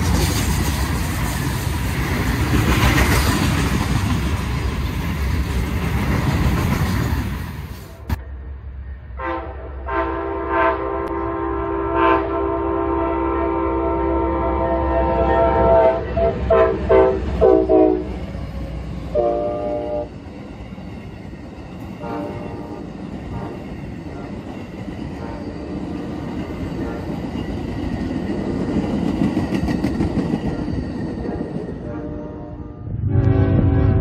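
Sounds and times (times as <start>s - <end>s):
train cars rumbling and clattering: 0.0s - 11.8s, 14.9s - 34.0s
train horn blasts: 9.2s - 18.2s, 19.1s - 20.2s, 22.0s - 23.5s, 31.8s - 34.0s.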